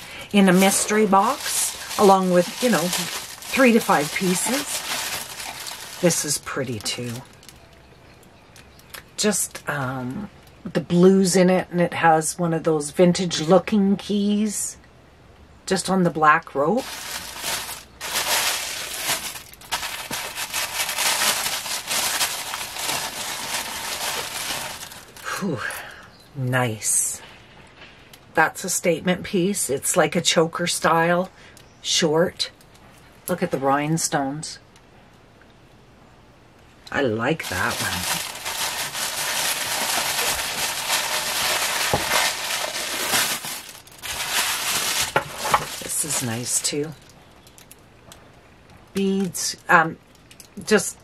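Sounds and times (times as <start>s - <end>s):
tissue paper rustling and crinkling: 0.2s - 7.4s, 16.8s - 25.2s, 37.4s - 46.7s.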